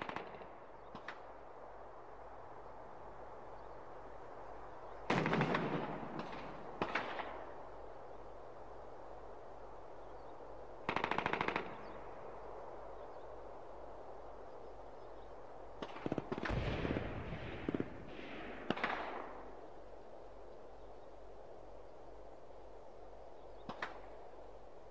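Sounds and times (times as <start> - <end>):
machine-gun fire: 5.1 - 7.4.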